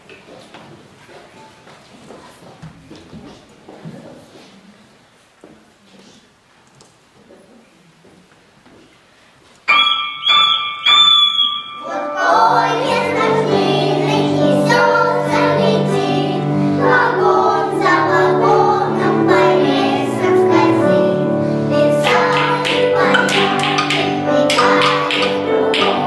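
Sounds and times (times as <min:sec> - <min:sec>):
children's choir singing: 0:09.7 - 0:26.0
piano accompaniment: 0:09.7 - 0:26.0.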